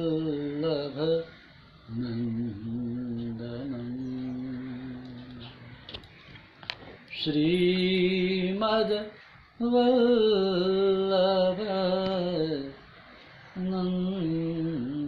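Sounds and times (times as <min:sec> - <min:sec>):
man chanting: 0:00.0 - 0:05.8, 0:07.2 - 0:12.8, 0:13.6 - 0:15.0.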